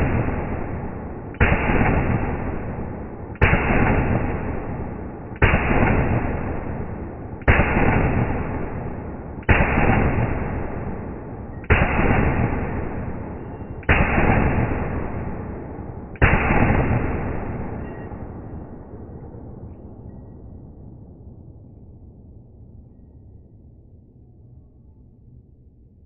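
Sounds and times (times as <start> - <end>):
slowed rifle shot booms: 0.0 - 19.7.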